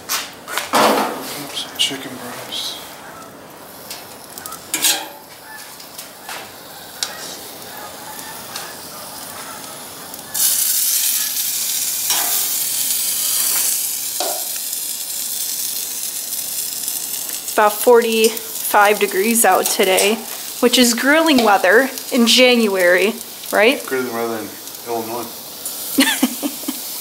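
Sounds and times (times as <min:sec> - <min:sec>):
chicken sizzling on grill: 0:00.7 - 0:27.0
tongs knocking: 0:04.4 - 0:05.2, 0:12.1 - 0:12.5.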